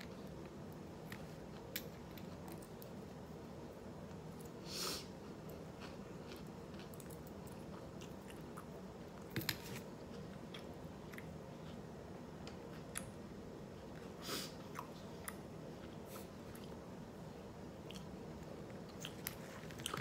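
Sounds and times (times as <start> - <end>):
person chewing food: 5.2 - 13.1, 17.8 - 20.0.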